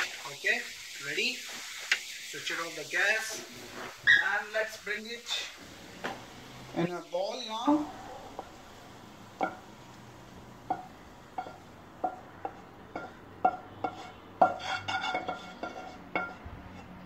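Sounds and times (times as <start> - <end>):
metal spoon clinking against pan: 10.7 - 16.4.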